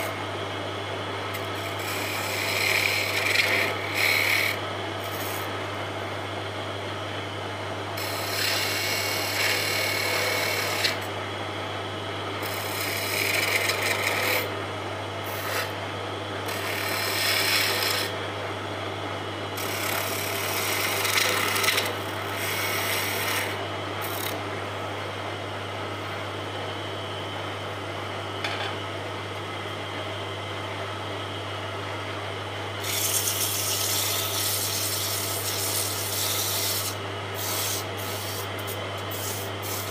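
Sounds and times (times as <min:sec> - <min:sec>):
lathe motor hum: 0:01.3 - 0:05.6, 0:08.0 - 0:11.4, 0:12.3 - 0:14.5, 0:15.2 - 0:15.8, 0:16.4 - 0:18.2, 0:19.5 - 0:24.4, 0:32.8 - 0:39.9
turning tool scraping wood: 0:01.4 - 0:05.5, 0:08.0 - 0:11.1, 0:12.4 - 0:14.5, 0:15.3 - 0:15.8, 0:16.5 - 0:18.1, 0:19.6 - 0:24.3, 0:32.8 - 0:39.9
sandpaper on spinning wood: 0:32.8 - 0:39.9.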